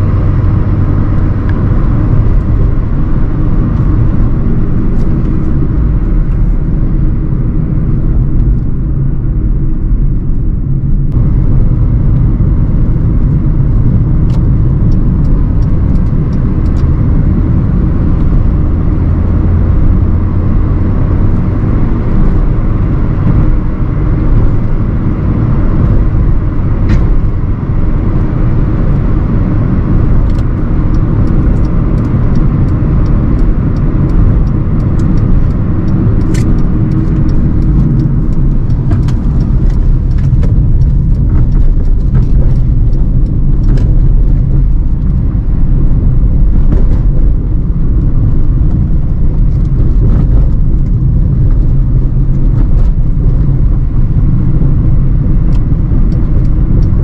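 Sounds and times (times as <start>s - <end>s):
car engine rumble while driving: 0.0s - 57.0s
small clicks and ticks: 13.3s - 17.4s, 29.8s - 57.0s.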